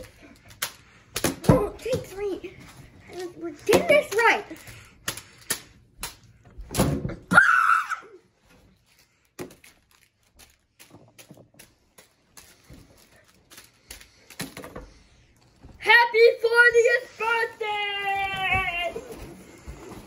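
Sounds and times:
foil bag crinkling: 4.2s - 5.5s, 8.4s - 14.6s, 16.5s - 20.0s.

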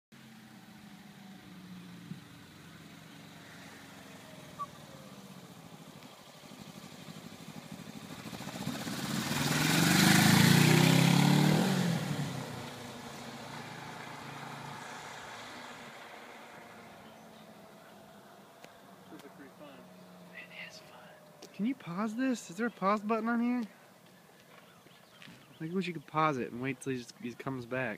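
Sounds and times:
motorcycle engine passing: 0.2s - 23.5s.

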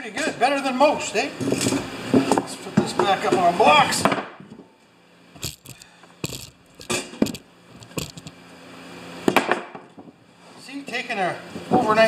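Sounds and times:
metal parts clinking on wood: 5.4s - 8.4s.

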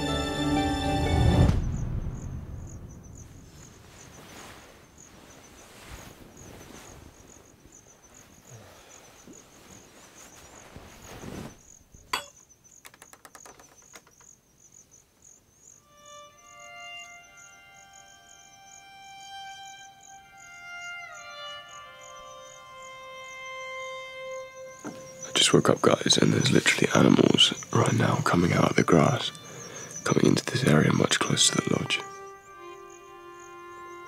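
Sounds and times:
insects trilling: 0.0s - 34.0s
soft rustling: 3.2s - 12.1s
sharp clicks: 12.8s - 14.3s.

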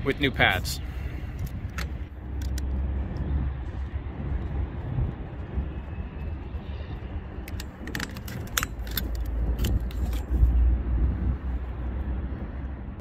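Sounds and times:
low rumble: 0.8s - 13.0s
rubber cap clicking and scraping: 7.5s - 10.5s.

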